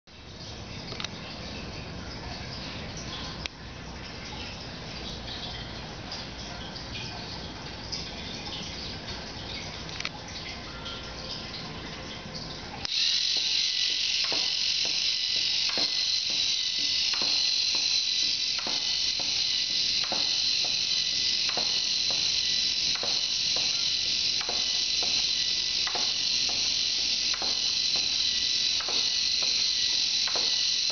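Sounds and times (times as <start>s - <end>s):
toy motor whining: 12.9s - 30.9s.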